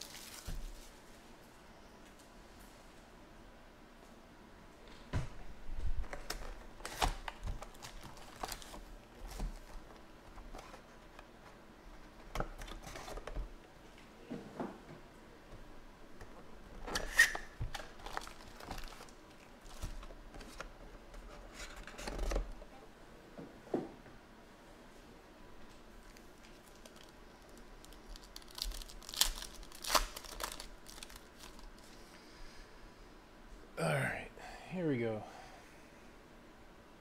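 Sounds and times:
foil wrappers rustling and tearing: 0.0 - 1.1, 6.1 - 9.9, 17.2 - 20.6, 26.4 - 32.0.

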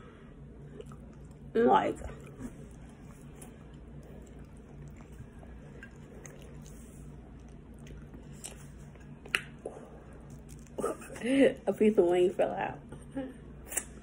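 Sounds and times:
steady low hum: 0.0 - 14.0
person chewing food: 0.6 - 11.2
wet mouth clicks: 4.2 - 10.8, 13.6 - 14.0.

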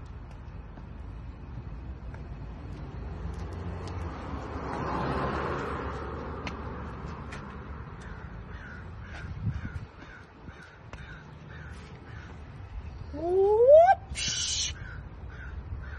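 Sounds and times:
outdoor background noise: 0.0 - 15.9
bird calling: 13.0 - 15.9.

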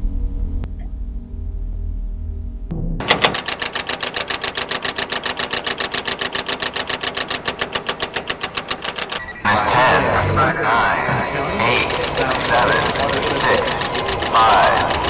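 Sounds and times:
rapid mechanical clatter: 3.0 - 15.0.

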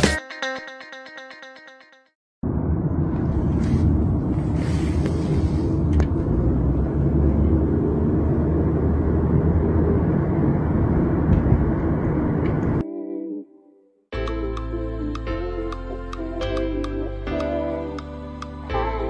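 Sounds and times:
car cabin road rumble: 2.4 - 12.8.

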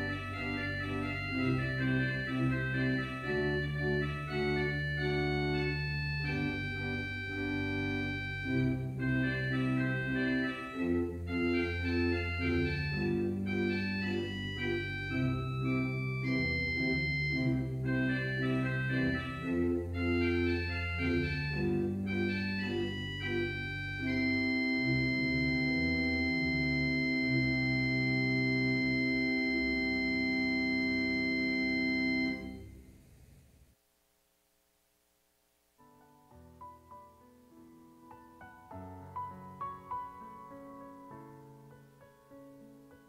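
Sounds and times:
church organ playing: 0.0 - 32.7.

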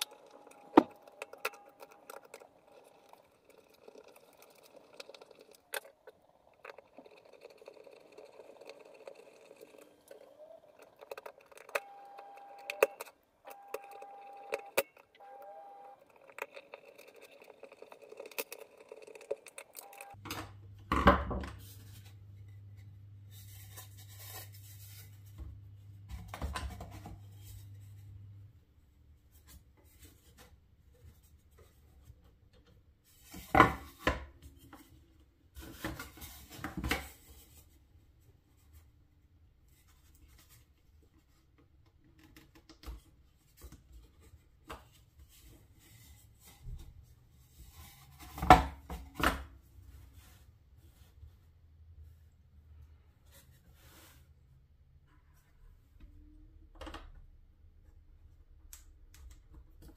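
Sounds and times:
quiet rubbing and scraping: 21.6 - 28.6, 43.3 - 48.5, 49.8 - 55.9.

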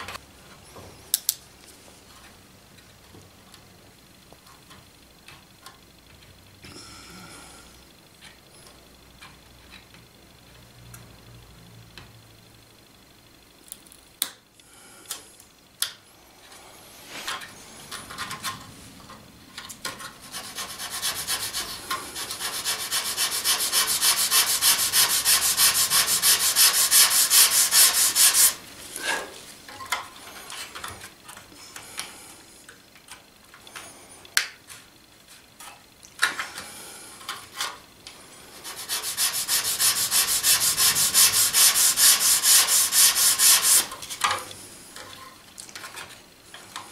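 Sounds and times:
sandpaper rubbing on wood: 20.2 - 28.6, 38.6 - 43.9.

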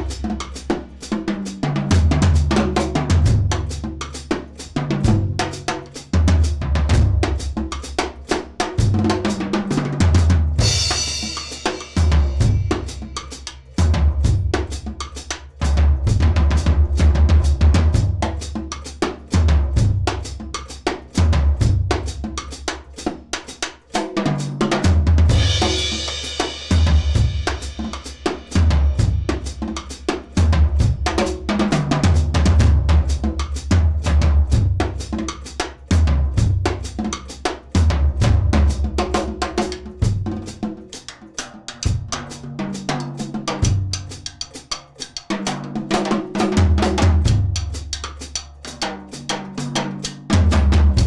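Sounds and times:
drum kit played with sticks: 0.0 - 51.0
snare and tom strokes: 0.0 - 51.0.

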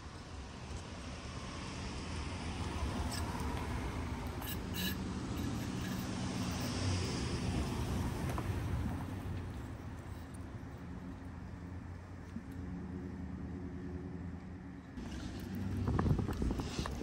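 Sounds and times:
pickup truck driving on dirt: 14.8 - 17.0.

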